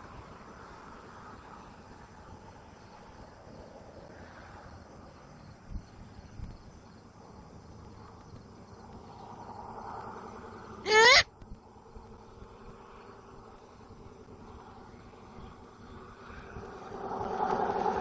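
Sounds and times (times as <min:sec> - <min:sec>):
insects at night: 0:00.0 - 0:18.0
owl rising chirp: 0:10.9 - 0:11.2.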